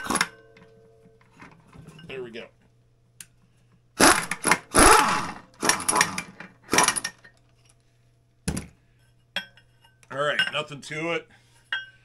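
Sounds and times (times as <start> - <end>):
impact wrench bursts: 4.0 - 7.2.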